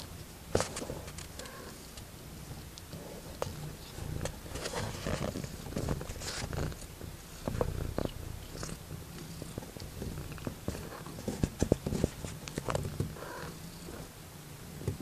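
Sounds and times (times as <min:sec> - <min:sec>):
kittens purring: 0:00.0 - 0:15.0.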